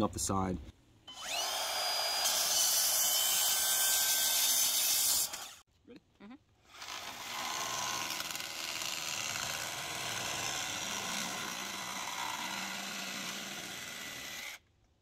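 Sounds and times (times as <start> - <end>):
cordless drill boring plastic pipe: 1.1 - 4.3, 6.7 - 14.6.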